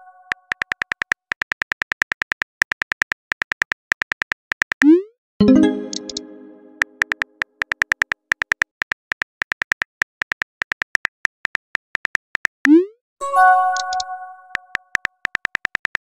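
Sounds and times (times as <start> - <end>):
chiming message alert tone: 5.4 - 7.0, 13.2 - 14.7.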